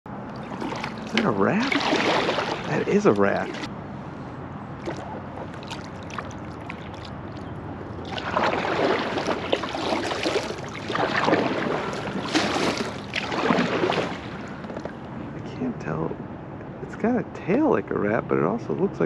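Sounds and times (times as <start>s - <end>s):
water sloshing around kayak: 0.1s - 15.1s.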